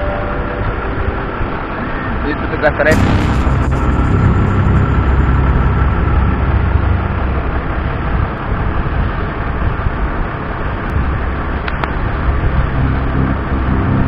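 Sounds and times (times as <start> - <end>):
tug engine low rumble: 2.9 - 9.7, 11.4 - 14.0.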